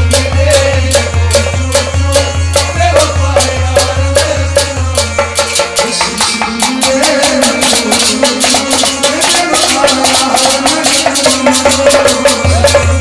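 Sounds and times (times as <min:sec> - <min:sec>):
goblet drums beating: 0:00.0 - 0:13.0.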